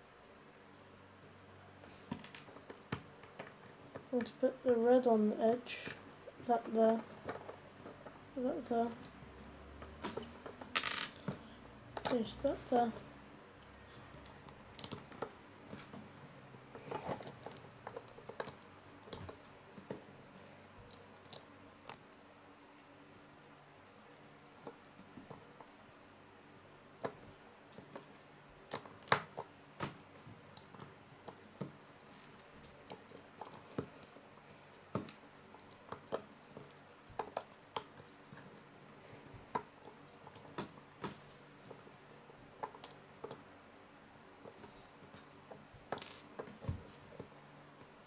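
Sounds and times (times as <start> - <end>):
plastic bricks clicking and snapping: 14.2 - 15.9, 16.8 - 19.4, 27.0 - 29.5.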